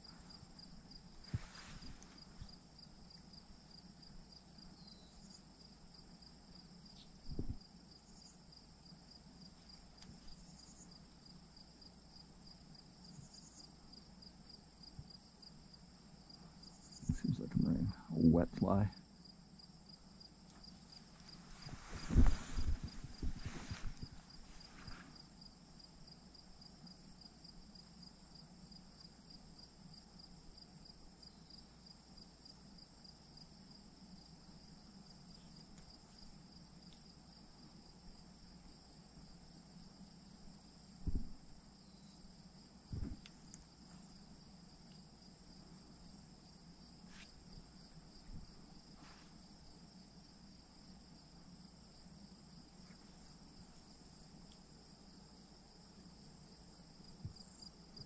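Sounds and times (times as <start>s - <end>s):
high insect trills: 0.0s - 58.0s
fast pulsing insect chirp: 1.8s - 13.8s
dull thumps: 21.5s - 25.2s, 41.0s - 41.5s, 42.9s - 43.3s.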